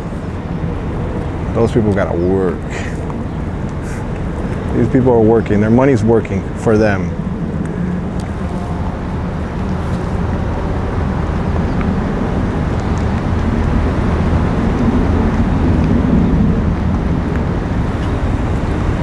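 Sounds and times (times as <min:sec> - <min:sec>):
yacht engines rumbling: 0:00.0 - 0:19.0.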